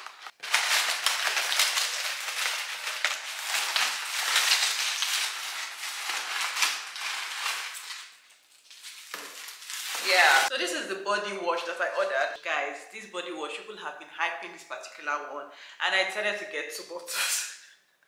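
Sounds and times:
paper rustling and crinkling: 0:00.0 - 0:10.5.

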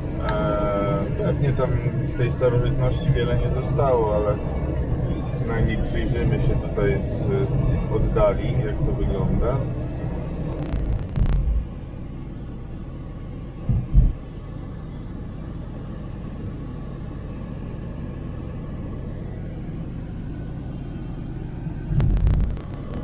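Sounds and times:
car road and engine rumble: 0:00.0 - 0:23.0
short low thumps: 0:10.5 - 0:11.6, 0:13.7 - 0:14.2, 0:21.9 - 0:23.0.

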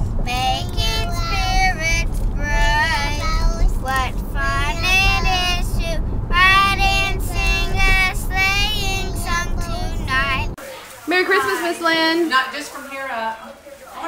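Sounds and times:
low background rumble: 0:00.0 - 0:10.6
child singing: 0:00.3 - 0:10.6.

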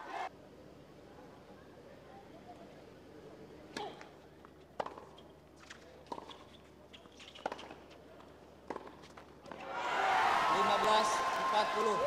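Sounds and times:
tennis ball hit with rackets: 0:08.7 - 0:09.0.

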